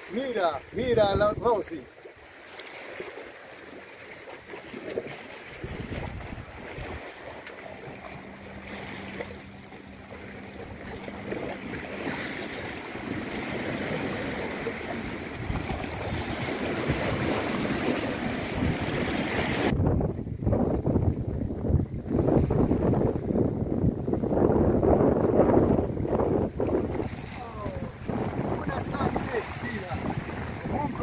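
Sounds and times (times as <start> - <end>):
wind buffeting microphone: 0.6 - 1.8, 4.8 - 31.0
sea waves splashing on rocks: 2.4 - 19.7, 26.4 - 31.0.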